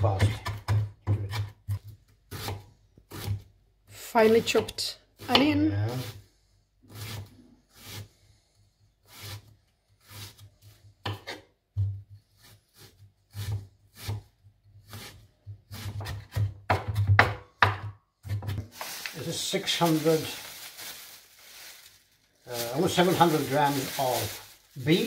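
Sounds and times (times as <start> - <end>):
knife chopping on wooden board: 0.0 - 3.4, 5.2 - 5.6, 11.0 - 12.0, 13.3 - 14.3, 14.9 - 18.6.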